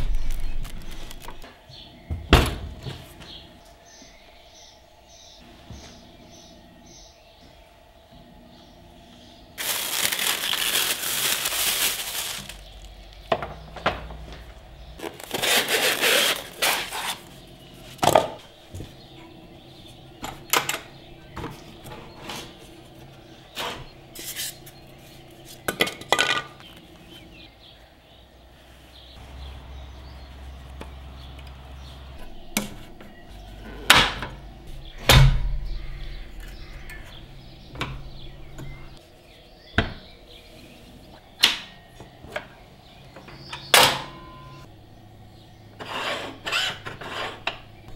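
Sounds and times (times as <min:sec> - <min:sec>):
rustling: 0:00.0 - 0:01.5, 0:09.6 - 0:13.0, 0:14.4 - 0:18.0.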